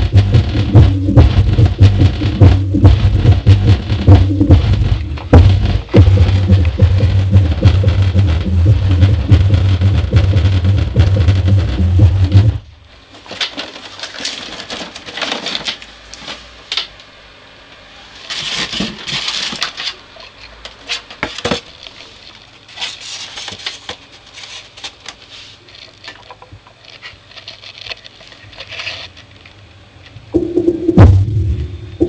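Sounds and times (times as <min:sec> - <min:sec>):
cardboard and polystyrene rustling: 0:13.0 - 0:16.7, 0:18.1 - 0:29.3.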